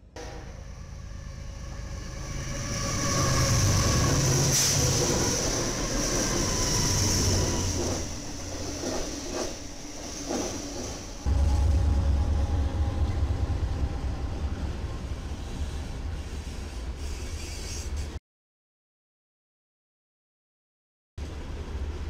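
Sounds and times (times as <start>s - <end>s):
diesel locomotives rumbling: 0.0s - 18.2s.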